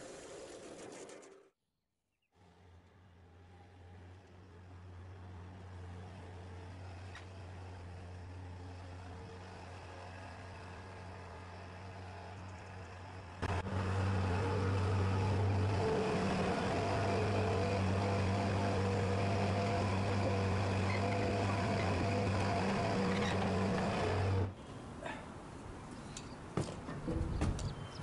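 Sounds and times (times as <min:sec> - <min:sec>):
skid-steer loader engine running: 0:03.1 - 0:24.6.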